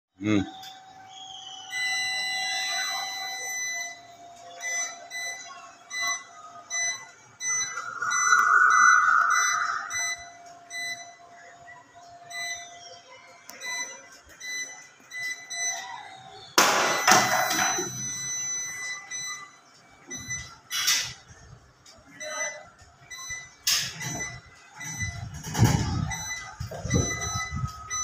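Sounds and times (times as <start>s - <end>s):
steady high hum: 0.7s - 28.0s
keypad beeps: 1.7s - 11.5s, 12.3s - 21.4s, 22.2s - 28.0s.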